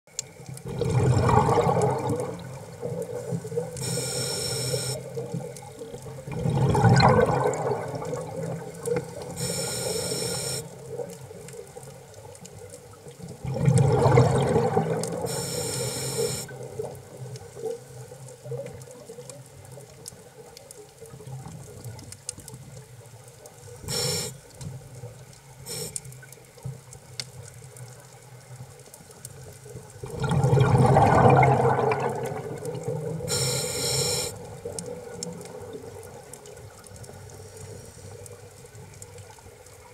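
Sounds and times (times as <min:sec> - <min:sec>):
low underwater hiss: 0:00.1 - 0:39.9
gurgling exhaled bubbles: 0:00.6 - 0:04.2, 0:05.0 - 0:09.5, 0:13.3 - 0:17.0, 0:29.9 - 0:36.8
regulator inhale hiss: 0:03.8 - 0:05.1, 0:09.3 - 0:10.7, 0:15.2 - 0:16.5, 0:23.7 - 0:24.5, 0:25.6 - 0:26.1, 0:33.3 - 0:34.4, 0:37.3 - 0:38.2.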